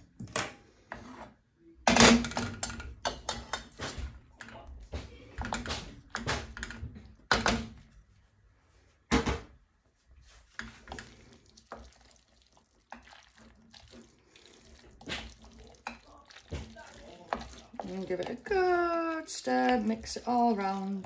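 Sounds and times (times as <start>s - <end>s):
wooden spoon stirring pasta: 10.3s - 21.0s.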